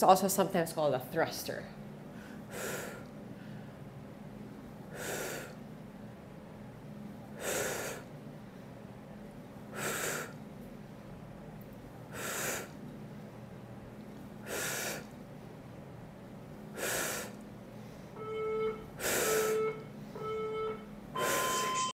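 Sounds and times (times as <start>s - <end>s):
timer beeps: 18.2s - 21.9s.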